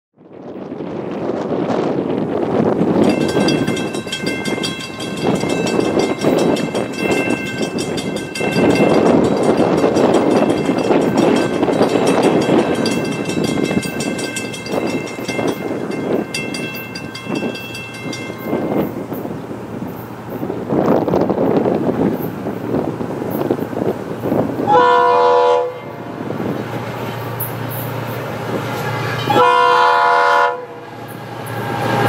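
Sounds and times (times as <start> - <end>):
locomotive horn blasts: 24.6 - 26.1, 29.2 - 30.8.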